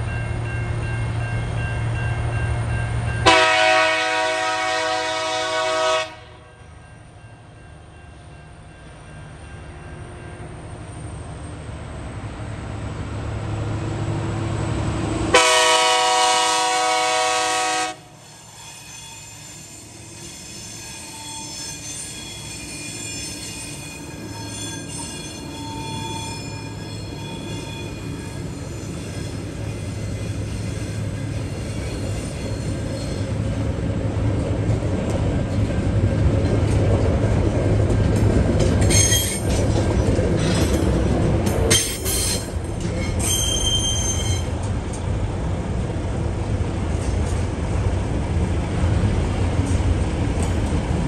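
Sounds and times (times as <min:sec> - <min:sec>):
train chord horn blast: 0:03.2 - 0:06.7, 0:15.3 - 0:18.2.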